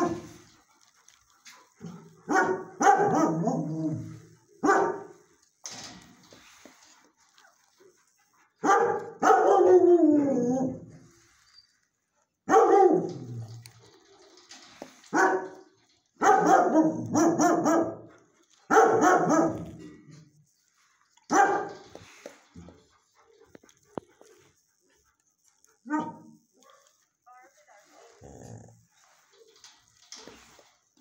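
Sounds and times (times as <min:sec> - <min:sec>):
dog barking: 0:00.0 - 0:00.3, 0:02.2 - 0:03.8, 0:04.6 - 0:05.1, 0:08.6 - 0:09.9, 0:12.5 - 0:13.2, 0:15.1 - 0:15.5, 0:16.2 - 0:18.1, 0:18.7 - 0:19.8, 0:21.3 - 0:21.8, 0:25.8 - 0:27.0.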